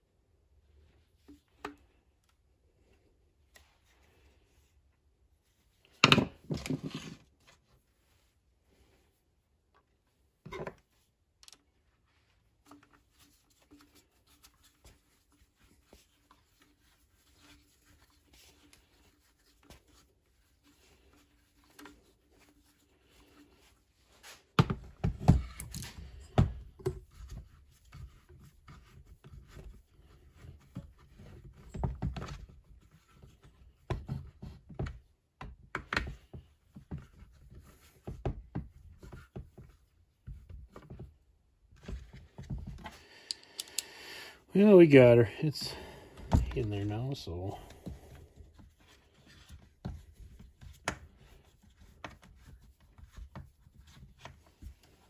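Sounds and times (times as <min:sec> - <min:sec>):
clicks and knocks of parts: 0:43.2 - 0:44.0.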